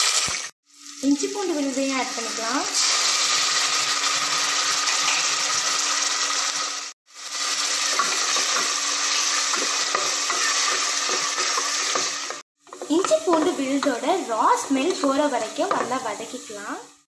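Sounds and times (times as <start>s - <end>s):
paste and spices sizzling in oil: 0.0s - 17.0s
wooden spatula scraping pot: 7.9s - 16.1s.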